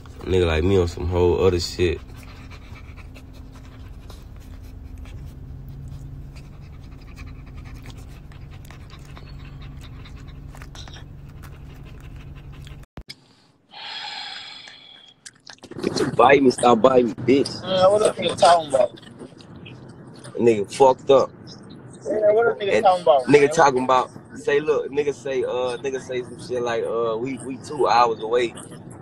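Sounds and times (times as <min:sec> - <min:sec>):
low steady hum: 0:00.0 - 0:12.8
dog panting: 0:00.0 - 0:12.9, 0:22.0 - 0:29.0.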